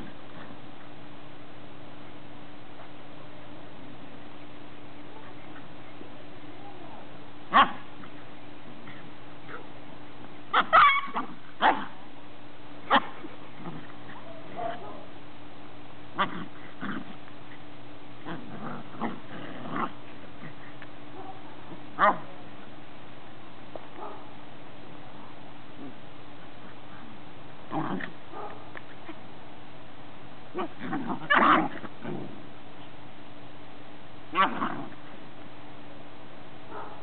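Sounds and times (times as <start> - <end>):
puppies yipping and barking: 10.5 - 11.5.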